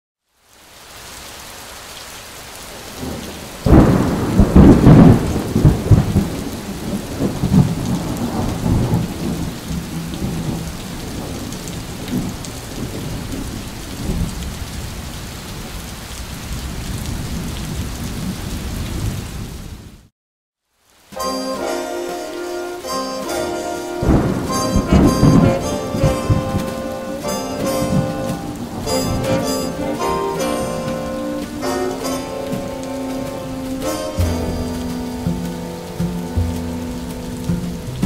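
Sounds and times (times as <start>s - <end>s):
steady rain: 0.2s - 38.0s
thunderclap rumbling: 2.9s - 15.0s, 23.2s - 38.0s.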